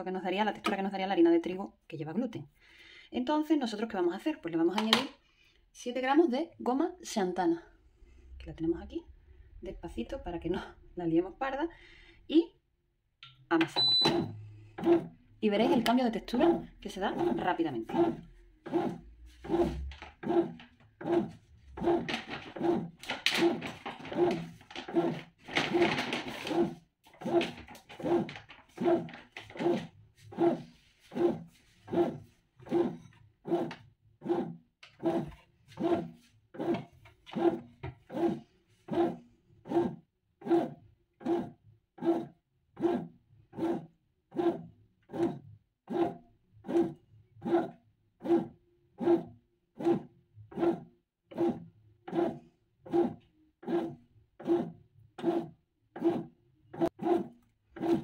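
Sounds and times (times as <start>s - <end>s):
bread machine kneading pulses: 13.8s - 58.0s.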